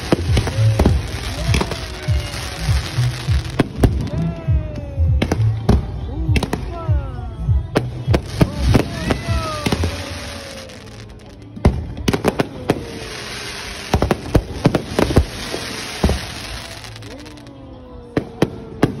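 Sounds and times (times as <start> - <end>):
fireworks crackling hiss: 0.0 - 4.2, 7.8 - 17.6
fireworks bangs: 0.0 - 6.6, 7.8 - 17.5
whistling fireworks falling in pitch: 0.0 - 6.6, 8.1 - 19.0.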